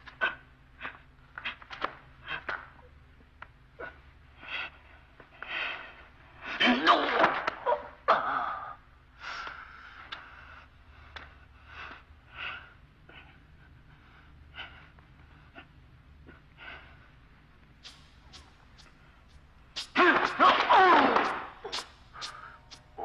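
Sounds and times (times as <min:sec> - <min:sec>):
man breathing hard: 0:03.8 - 0:06.7, 0:09.2 - 0:20.5, 0:21.4 - 0:23.0
man gasping: 0:21.3 - 0:23.0.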